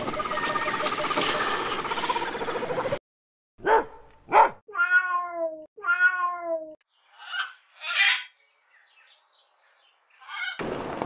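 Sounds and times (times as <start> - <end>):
cat meowing: 4.7 - 7.4.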